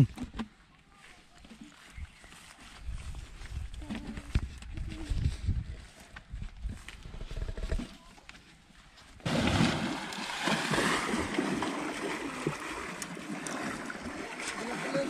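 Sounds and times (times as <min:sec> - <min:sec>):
water sloshing and splashing: 0:09.2 - 0:15.0.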